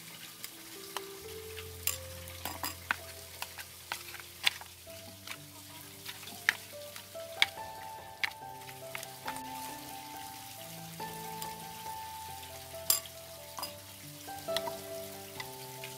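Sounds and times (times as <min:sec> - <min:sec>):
soft background music: 0:00.0 - 0:15.9
wet meat squelching: 0:00.4 - 0:10.4
chopsticks tapping metal tray: 0:01.8 - 0:04.6.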